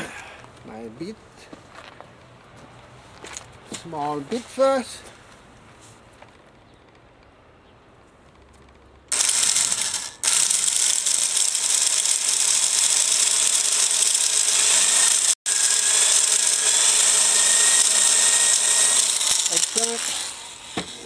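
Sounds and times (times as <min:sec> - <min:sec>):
electric drill boring into wood: 0:09.1 - 0:21.0.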